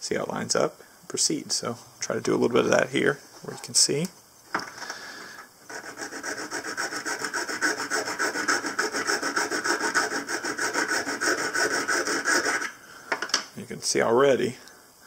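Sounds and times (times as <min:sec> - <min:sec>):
hand file rasping on steel: 0:05.7 - 0:12.7.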